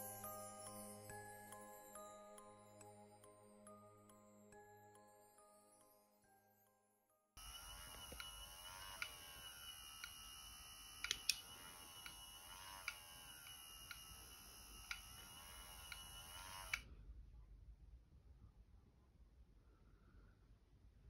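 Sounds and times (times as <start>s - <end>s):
electronic hum and static hiss: 7.4s - 16.8s
high whine: 7.4s - 16.8s
sharp clicks: 7.9s - 9.3s, 11.0s - 16.8s.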